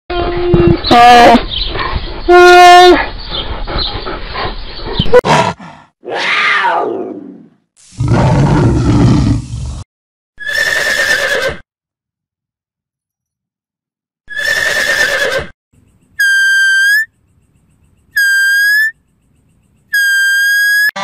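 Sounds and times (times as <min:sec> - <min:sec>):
tiger roaring: 0:05.2 - 0:09.8
horse whinnying: 0:10.4 - 0:11.6, 0:14.3 - 0:15.5.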